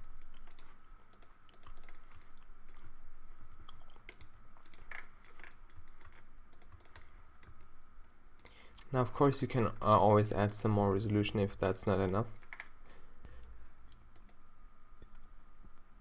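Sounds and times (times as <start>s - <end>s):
keyboard keys clicking: 0.0s - 2.9s, 3.7s - 7.6s
faint high-pitched hum: 0.0s - 16.0s.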